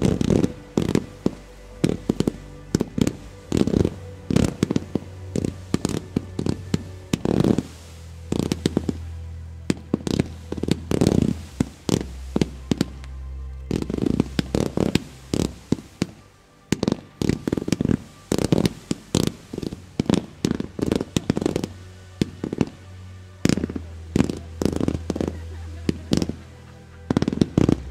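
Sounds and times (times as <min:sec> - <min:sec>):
music: 0:00.0 - 0:27.9
fireworks crackling bursts: 0:13.7 - 0:22.8, 0:23.4 - 0:27.9.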